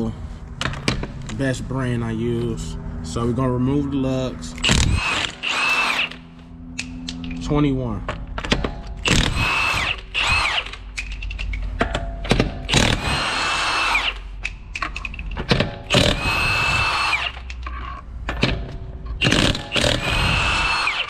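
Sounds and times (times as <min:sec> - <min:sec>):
impact wrench whining and rattling: 0:04.6 - 0:21.0.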